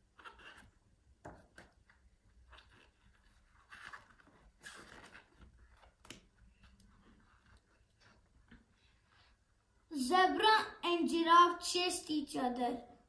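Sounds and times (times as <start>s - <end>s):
paper pages turning: 1.7s - 8.3s.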